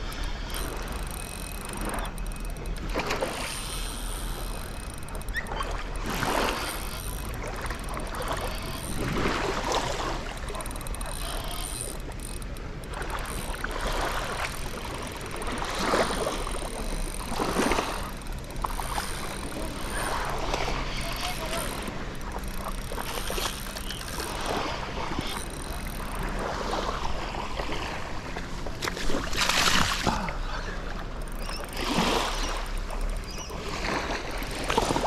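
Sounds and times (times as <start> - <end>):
water sloshing around wading legs: 0.0 - 35.0.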